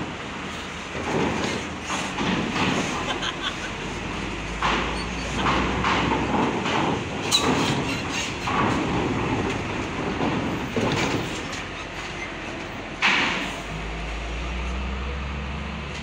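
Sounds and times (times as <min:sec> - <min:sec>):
diesel truck engines running: 0:00.0 - 0:16.0
tyres clattering on steel plates: 0:00.9 - 0:12.0.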